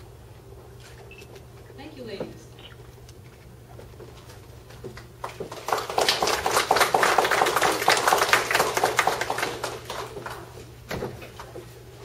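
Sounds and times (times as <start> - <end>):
audience applauding: 5.0 - 10.6.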